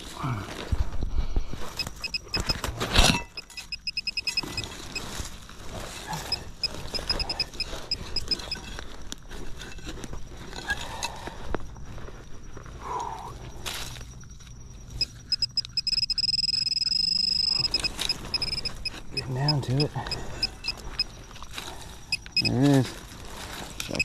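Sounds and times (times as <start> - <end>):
soil scraping and rustling: 0.0 - 15.9, 16.9 - 24.0
pinpointer beeping: 1.8 - 2.6, 3.4 - 5.0, 6.2 - 8.7, 15.0 - 21.2, 22.1 - 22.6.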